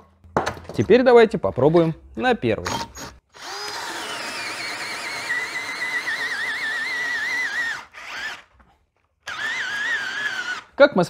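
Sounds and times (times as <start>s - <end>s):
cordless drill labouring into wood: 3.3s - 10.8s.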